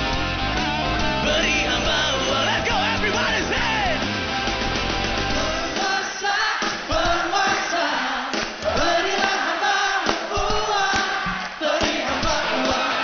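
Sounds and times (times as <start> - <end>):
rock band playing: 0.0 - 6.2
man singing: 1.1 - 4.0, 5.3 - 8.1, 10.4 - 13.0
audience voices: 5.3 - 13.0.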